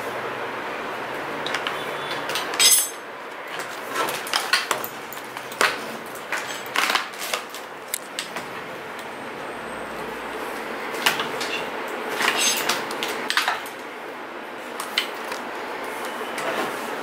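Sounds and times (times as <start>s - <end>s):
metal bicycle parts clinking: 2.2s - 3.0s, 12.2s - 13.8s.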